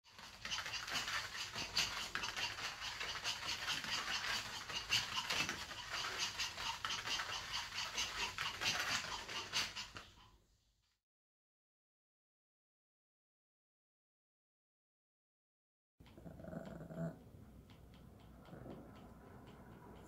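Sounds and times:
dog paws pattering on foam mat: 0.1 - 10.4.

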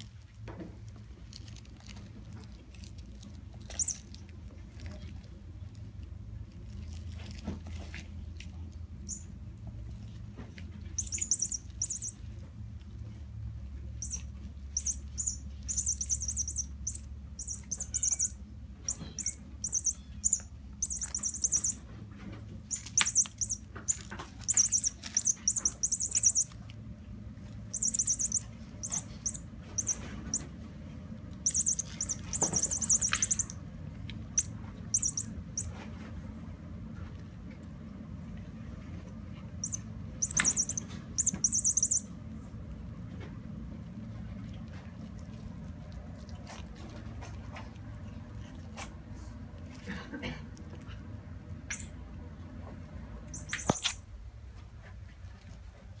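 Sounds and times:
high-pitched electronic chirps: 3.7 - 4.0, 9.1 - 9.3, 11.0 - 12.2, 14.0 - 21.8, 22.7 - 26.6, 27.7 - 30.5, 31.4 - 33.6, 34.4 - 35.7, 39.6 - 42.1, 53.4 - 54.0.

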